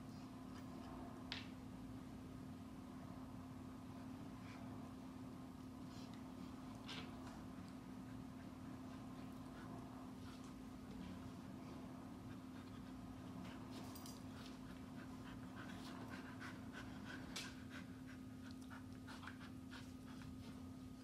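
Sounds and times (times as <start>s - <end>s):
steady low hum: 0.0s - 21.0s
dog panting: 5.8s - 21.0s.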